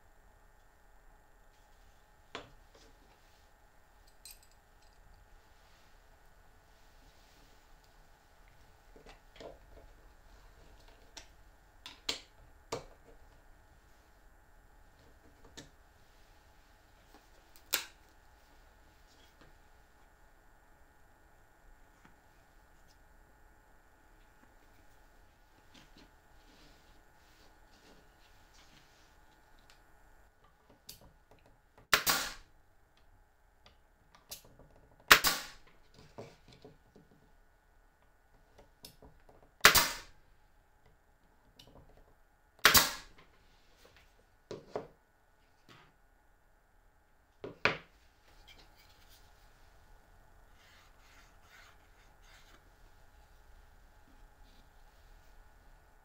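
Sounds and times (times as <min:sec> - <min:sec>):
nail gun shots: 0:31.9 - 0:32.5, 0:35.1 - 0:35.6, 0:39.6 - 0:40.1, 0:42.6 - 0:43.1.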